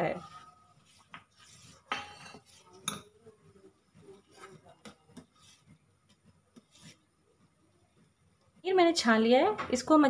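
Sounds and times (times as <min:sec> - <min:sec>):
spoon scraping steel pot: 0:00.0 - 0:03.2.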